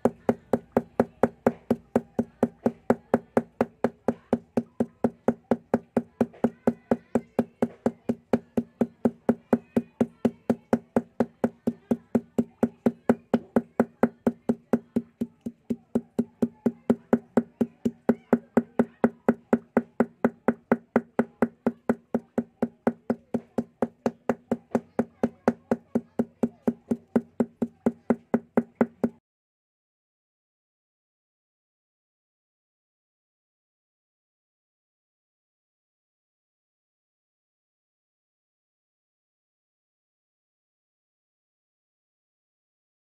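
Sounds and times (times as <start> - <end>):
hammer beating brush on stone: 0.0 - 29.2.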